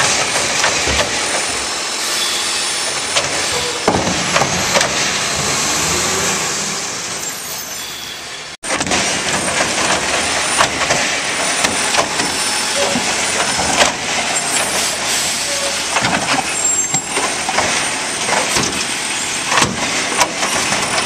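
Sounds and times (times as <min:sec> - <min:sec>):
hydraulic arm running: 0:00.0 - 0:07.3
garbage truck diesel engine: 0:00.0 - 0:21.0
trash cart knocks: 0:03.2 - 0:05.6.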